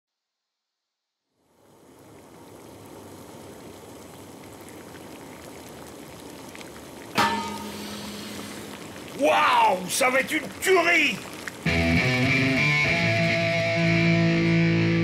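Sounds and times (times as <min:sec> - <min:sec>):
sauce bubbling in pot: 0:01.3 - 0:14.2
loud hit with ringing tone: 0:07.2 - 0:08.7.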